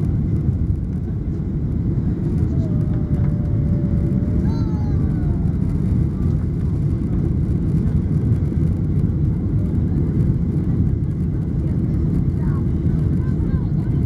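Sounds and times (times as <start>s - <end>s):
rushing air: 0.0s - 9.0s
jet engines droning in cabin: 0.0s - 14.0s.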